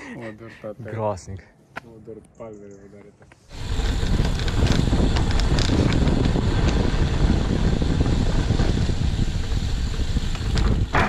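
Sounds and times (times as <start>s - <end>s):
wind buffeting microphone: 3.5s - 11.0s.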